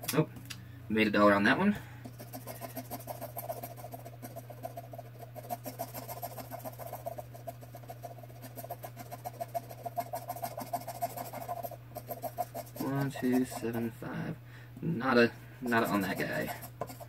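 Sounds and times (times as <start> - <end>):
scratching lottery ticket: 2.1 - 13.9, 15.6 - 17.0.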